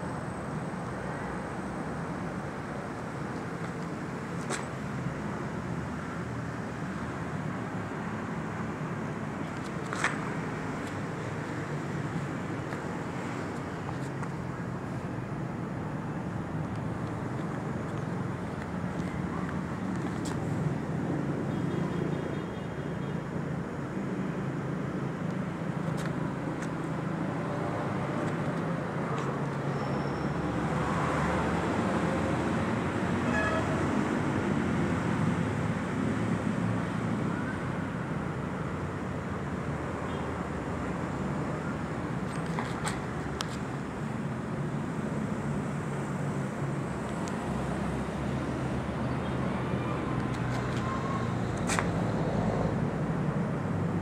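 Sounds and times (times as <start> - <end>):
outdoor background noise: 0.0 - 54.0
road traffic: 0.0 - 54.0.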